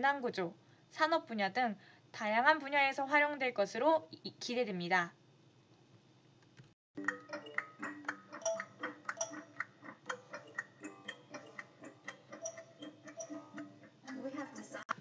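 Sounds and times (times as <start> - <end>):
rapid uneven ticking and clicking: 7.0 - 15.0.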